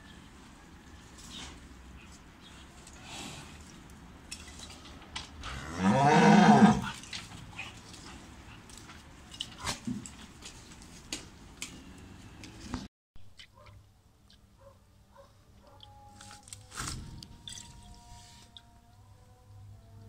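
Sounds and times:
cow mooing: 5.4s - 7.0s.

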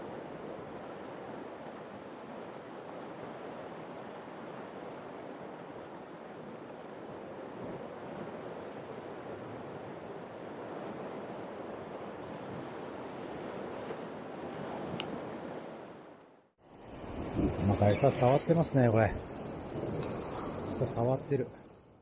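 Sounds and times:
wind buffeting microphone: 16.8s - 21.7s.

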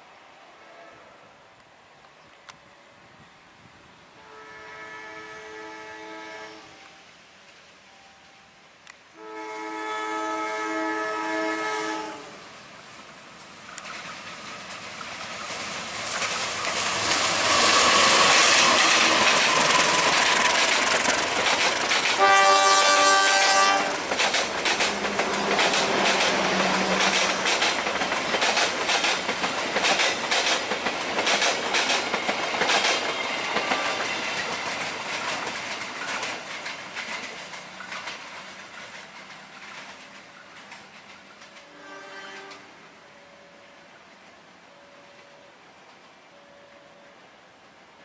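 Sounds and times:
train horn: 0.6s - 1.4s, 4.2s - 7.1s, 9.1s - 12.5s, 22.0s - 24.1s, 24.8s - 27.5s, 33.2s - 34.4s, 41.6s - 43.9s, 46.3s - 47.2s
locomotive passing at speed: 11.8s - 41.8s
wheels clacking over rail joints: 13.3s - 41.8s.

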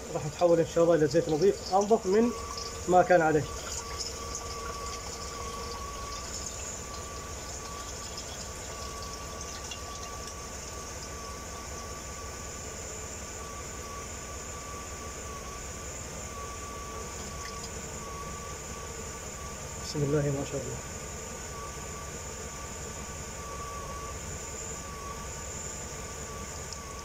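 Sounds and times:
thin steady whine: 0.0s - 27.0s
fluid pouring into container: 0.6s - 12.0s, 17.0s - 18.0s.

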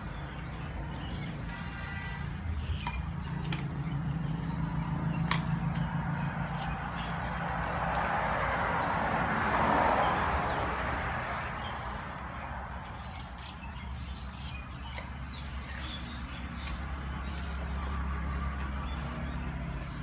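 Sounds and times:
birds chirping: 0.0s - 20.0s
dogs eating from metal bowls: 2.6s - 9.1s, 11.7s - 19.9s.

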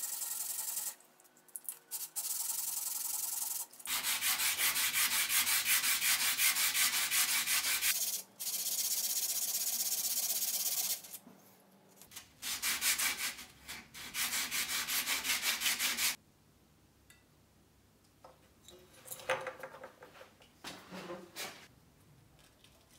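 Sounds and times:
bone rubbing on sandpaper: 3.9s - 8.0s.

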